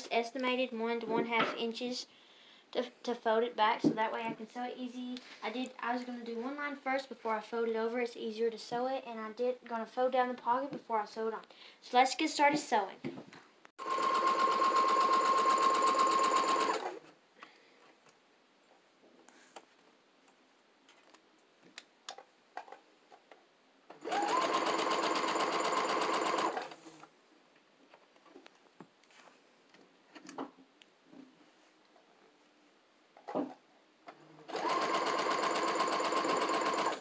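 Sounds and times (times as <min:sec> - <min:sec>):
electric sewing machine stitching: 0:13.8 - 0:17.0, 0:23.9 - 0:26.8, 0:34.5 - 0:37.0.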